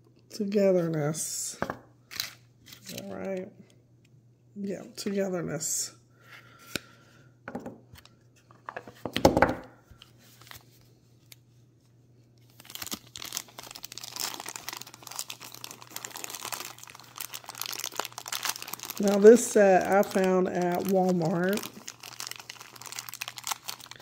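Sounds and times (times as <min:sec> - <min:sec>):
plastic bag crinkling: 0:12.4 - 0:24.0.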